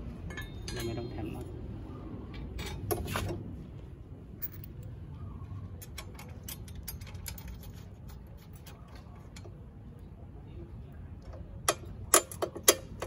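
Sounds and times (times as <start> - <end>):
low steady rumble: 0.0 - 13.0.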